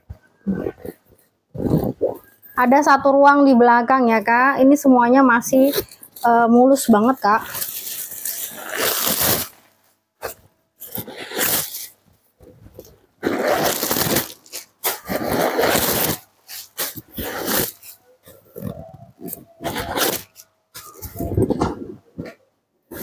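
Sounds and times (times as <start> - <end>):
leather bag rustling and rubbing: 7.1 - 9.6, 10.2 - 12.0, 12.8 - 20.4.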